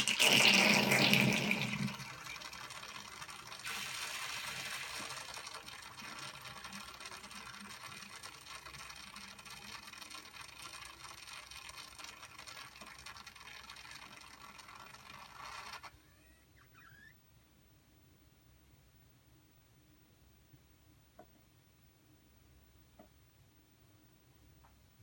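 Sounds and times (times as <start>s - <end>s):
drain pump whirring: 0.0s - 15.9s
water rushing through drain hose: 0.0s - 15.9s.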